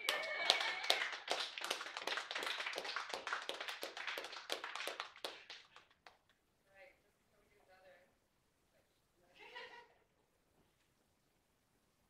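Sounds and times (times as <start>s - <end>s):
cheering whistle: 0.0s - 1.1s
audience applauding: 0.0s - 6.2s.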